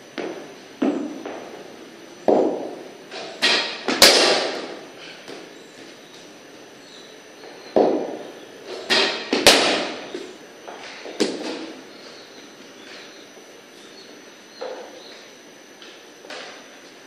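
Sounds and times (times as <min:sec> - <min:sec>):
cricket bat hitting ball: 0:02.3 - 0:02.8, 0:03.4 - 0:04.8, 0:07.8 - 0:08.3, 0:08.9 - 0:10.2.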